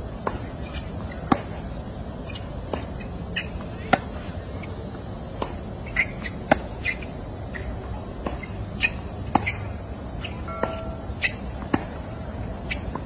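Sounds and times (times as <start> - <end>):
high insect drone: 0.0 - 13.0
tennis racket hitting ball: 10.2 - 12.0.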